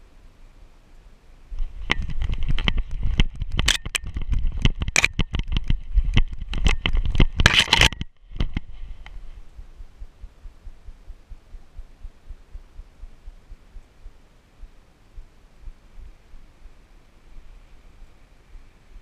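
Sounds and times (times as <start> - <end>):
low handling rumble: 8.6 - 16.5.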